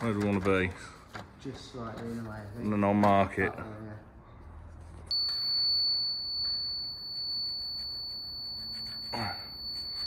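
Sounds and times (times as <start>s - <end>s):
steady high-pitched tone: 5.1s - 10.0s
pencil scratching on metal: 7.0s - 10.0s.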